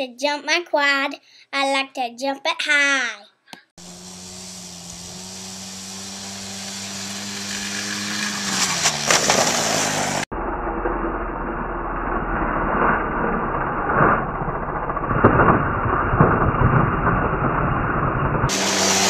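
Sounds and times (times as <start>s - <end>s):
quad bike engine revving: 3.8s - 11.1s, 18.5s - 19.0s.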